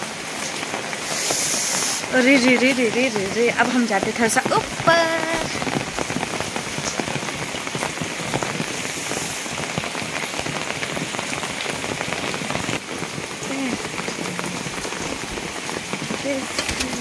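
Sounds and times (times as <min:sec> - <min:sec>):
rain on an umbrella: 0:00.0 - 0:17.0.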